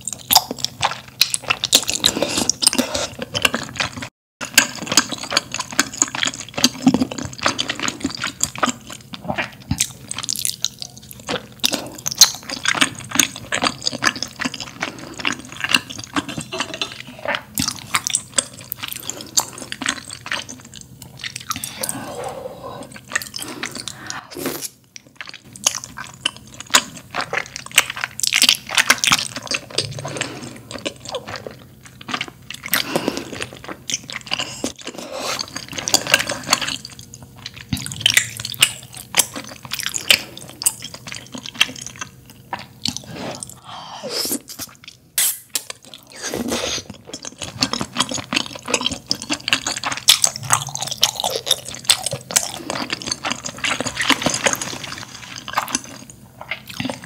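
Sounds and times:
wet chewing: 0.0 - 43.6, 44.3 - 57.0
slurping noodles: 21.2 - 24.8, 42.9 - 45.4, 46.0 - 48.0.

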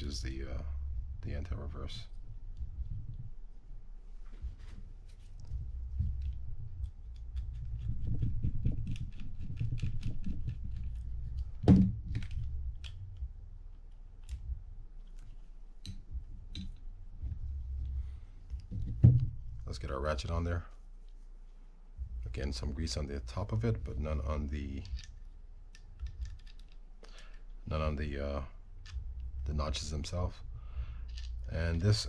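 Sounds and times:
reel parts clicking and tapping: 24.7 - 27.6, 31.0 - 31.5.

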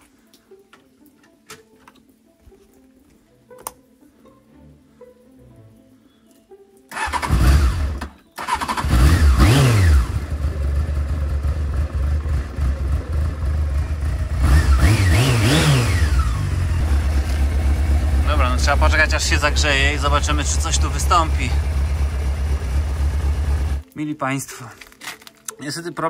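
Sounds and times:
motorcycle engine starting and idling: 6.9 - 23.8
motorcycle engine revving: 7.0 - 23.8.

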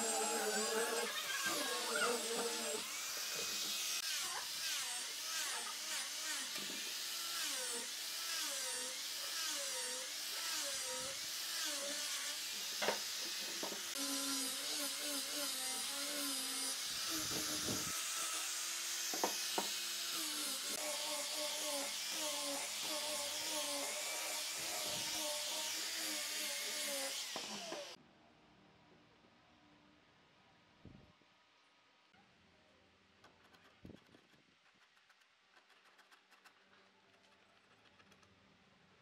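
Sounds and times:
angle grinder sanding wood: 0.0 - 28.0.

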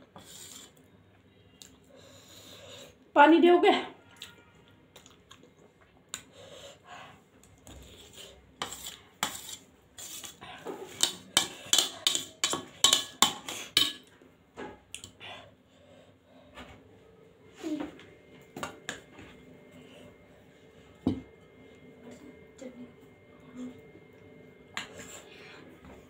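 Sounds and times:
cutlery clinking on metal plate: 11.0 - 14.1.

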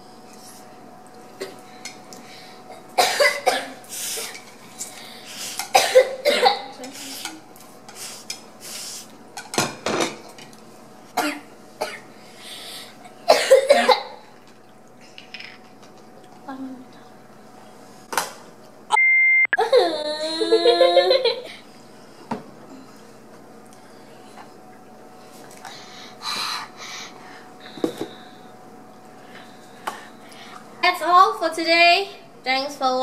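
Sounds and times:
person coughing: 3.0 - 3.8, 5.7 - 6.8, 13.3 - 14.2.

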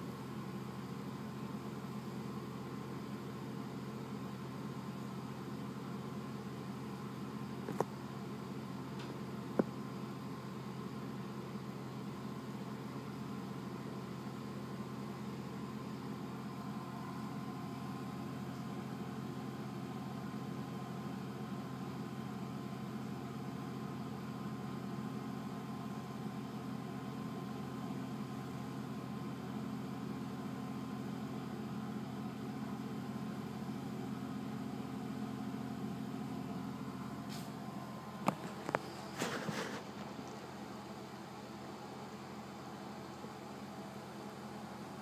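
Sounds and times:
low mechanical hum: 0.0 - 45.0
thin steady whine: 31.8 - 45.0.

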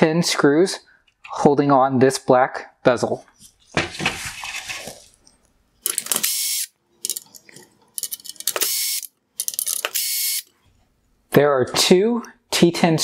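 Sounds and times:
power screwdriver clicking and whirring: 5.9 - 6.7, 8.5 - 10.5.

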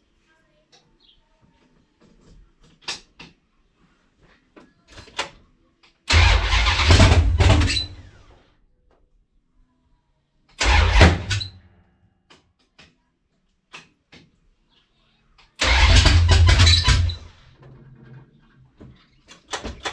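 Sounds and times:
car engine bursts rumbling: 6.1 - 8.2, 10.6 - 11.4, 15.6 - 17.5.

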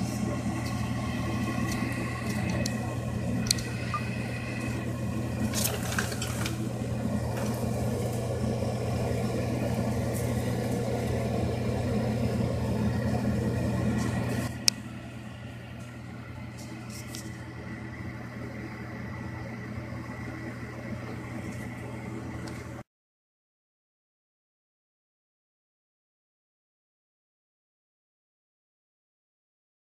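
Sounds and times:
low mechanical hum: 0.0 - 22.9.

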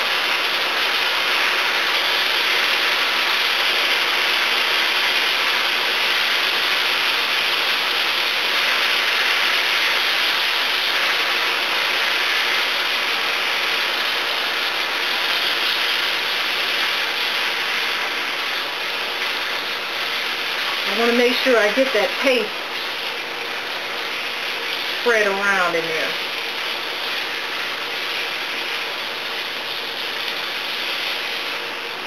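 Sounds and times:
onions sizzling in a pan: 0.0 - 32.0.

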